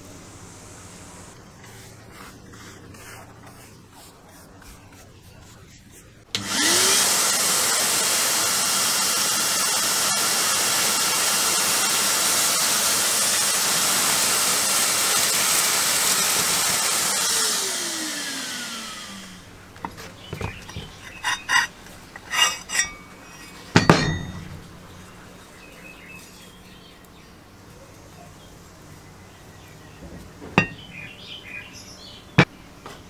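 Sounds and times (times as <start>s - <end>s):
vacuum motor winding down: 6.3s - 19.5s
vacuum cleaner running: 6.3s - 24.5s.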